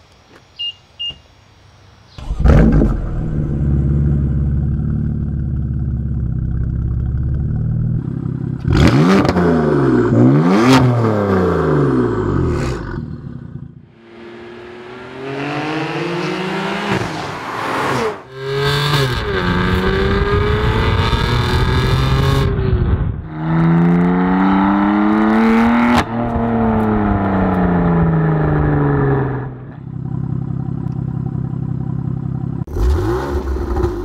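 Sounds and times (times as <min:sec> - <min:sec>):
car engine revving and idling: 0:02.2 - 0:22.7, 0:23.3 - 0:34.0
car driving by: 0:13.9 - 0:20.0.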